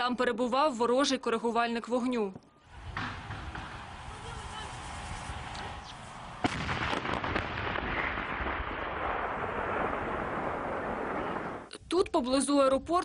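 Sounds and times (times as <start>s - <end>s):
tank gun blast: 6.4s - 11.7s.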